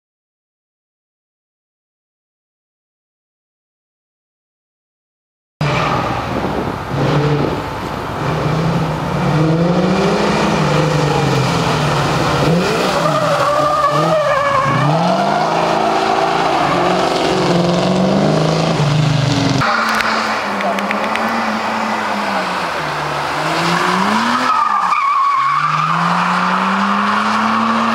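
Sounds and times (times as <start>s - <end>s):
car engine revving: 5.6s - 27.9s
steady car engine: 5.6s - 27.9s
tyres squealing: 10.3s - 20.0s, 20.6s - 27.9s.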